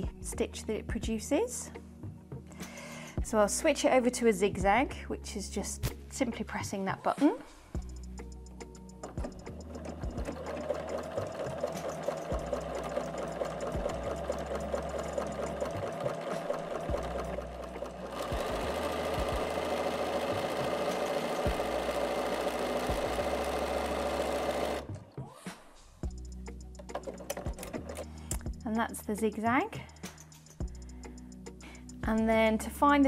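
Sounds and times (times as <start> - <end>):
sewing machine stitching: 9.1 - 25.0.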